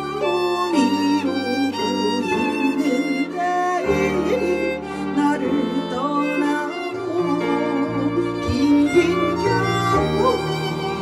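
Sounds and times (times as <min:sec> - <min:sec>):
bowed string melody: 0:00.0 - 0:11.0.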